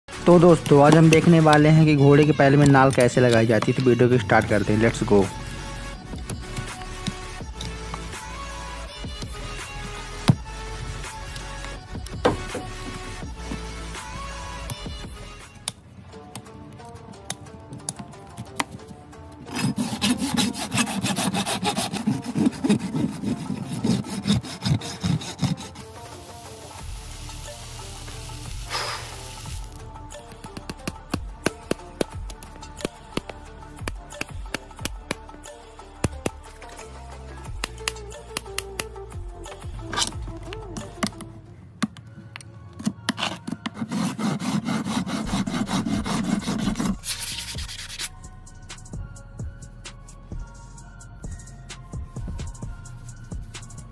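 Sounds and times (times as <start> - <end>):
rasp scraping hoof: 19.4 - 26.2
hot horseshoe hissing: 19.6 - 29.8.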